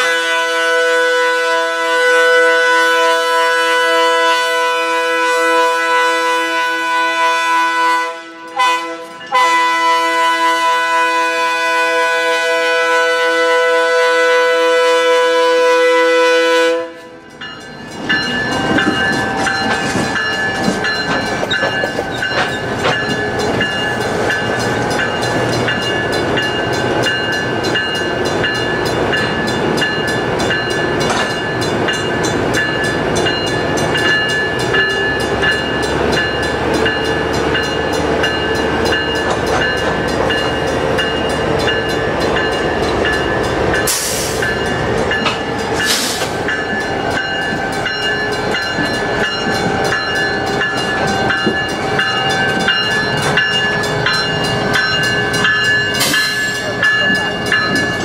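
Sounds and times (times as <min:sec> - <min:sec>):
diesel locomotives rolling past: 0:00.0 - 0:58.0
wheels clicking over rail joints: 0:17.3 - 0:26.2, 0:29.5 - 0:54.2.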